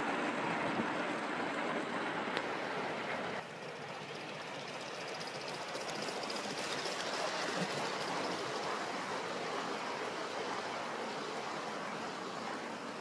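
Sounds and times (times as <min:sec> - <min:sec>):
model steam locomotive hissing: 0:03.6 - 0:13.0.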